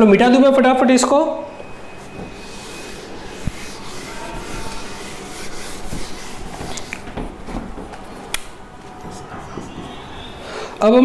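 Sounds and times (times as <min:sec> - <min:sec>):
duster rubbing on whiteboard: 0:01.8 - 0:08.2, 0:08.9 - 0:10.6.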